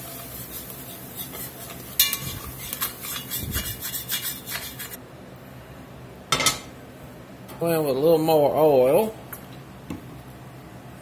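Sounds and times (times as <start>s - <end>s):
spoon scraping a pot: 0.0s - 5.0s.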